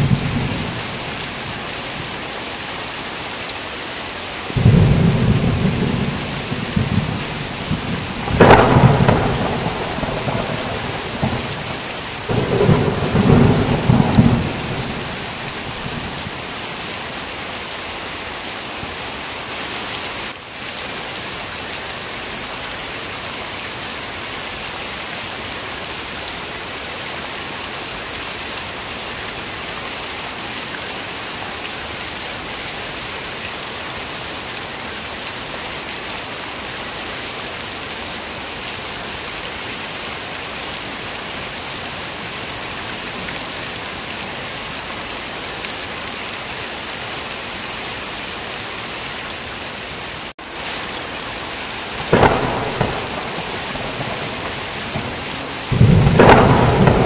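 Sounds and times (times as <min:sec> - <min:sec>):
thunder rumbling: 0:00.0 - 0:01.5, 0:04.5 - 0:16.5, 0:51.9 - 0:57.0
heavy rain falling: 0:00.0 - 0:57.0.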